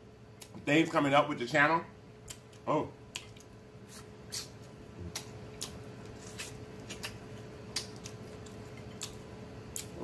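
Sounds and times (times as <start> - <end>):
chewing and lip-smacking: 2.2 - 10.0.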